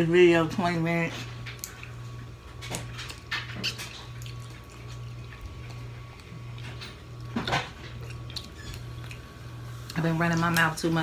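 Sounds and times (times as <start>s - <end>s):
steady low hum: 0.0s - 11.0s
chewing: 1.1s - 10.7s.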